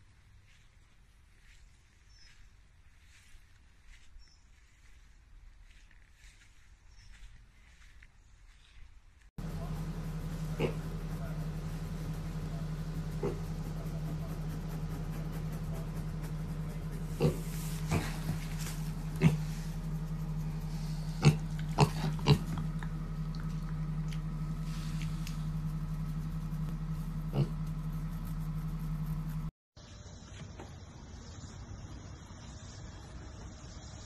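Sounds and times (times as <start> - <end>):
steady low hum: 9.4 - 34.0
piglet grunting: 9.5 - 25.3, 27.2 - 27.8.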